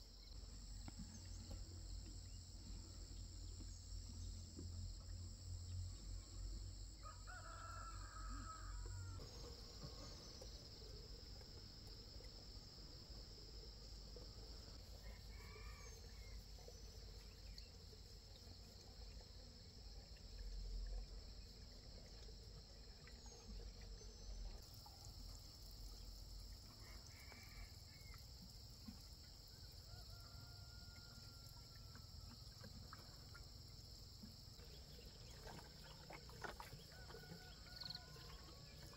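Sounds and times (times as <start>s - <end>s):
roosters crowing: 7.0s - 9.4s, 36.7s - 38.9s.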